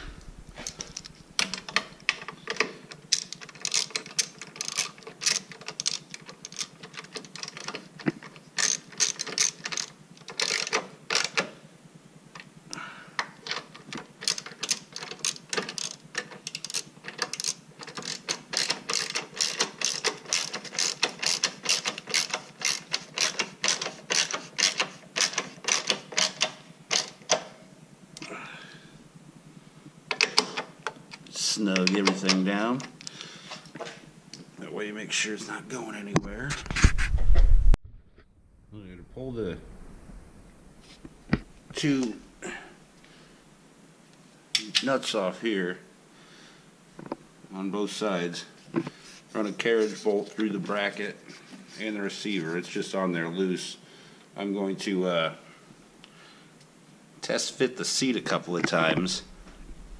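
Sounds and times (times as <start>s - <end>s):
hand ratchet clicking: 0.3s - 11.5s, 13.2s - 27.4s.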